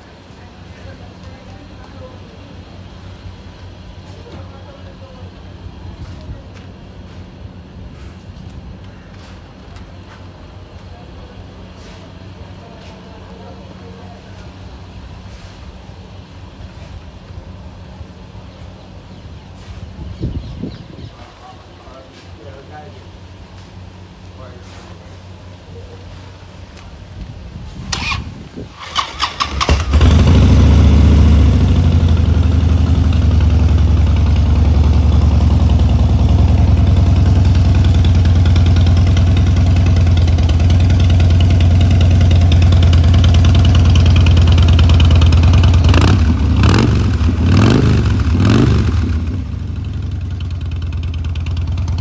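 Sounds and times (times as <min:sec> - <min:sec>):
motorcycle engine revving: 0:27.9 - 0:52.0
motorcycle engine idling: 0:28.8 - 0:52.0.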